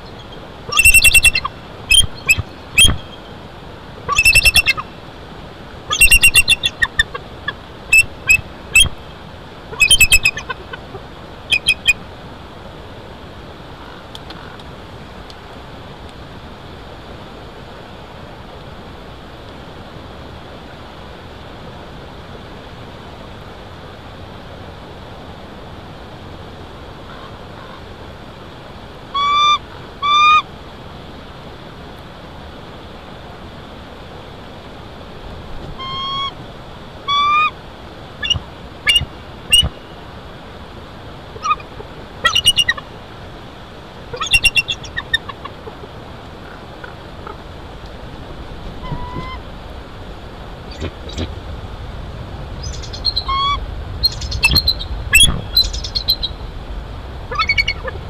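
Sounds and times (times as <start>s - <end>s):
eagle calls: 0.0s - 3.3s, 4.1s - 5.0s, 5.9s - 9.0s, 9.7s - 12.0s, 29.1s - 30.5s, 35.7s - 36.4s, 37.1s - 37.6s, 38.2s - 40.0s, 41.4s - 42.8s, 44.1s - 47.5s, 48.8s - 49.5s, 52.6s - 56.4s, 57.3s - 58.0s
wind noise: 44.1s - 58.0s.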